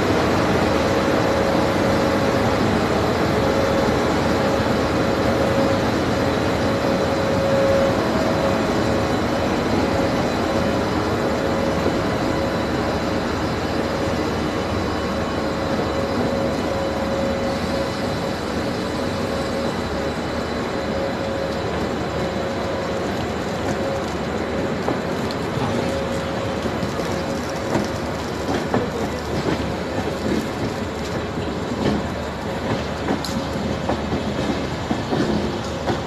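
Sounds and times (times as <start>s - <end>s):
locomotive whine: 0.0s - 36.0s
train rolling past on track: 0.0s - 36.0s.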